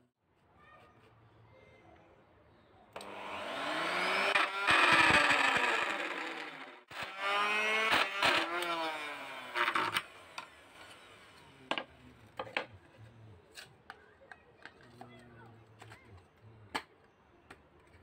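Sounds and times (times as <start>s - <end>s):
router motor winding down: 3.0s - 11.6s.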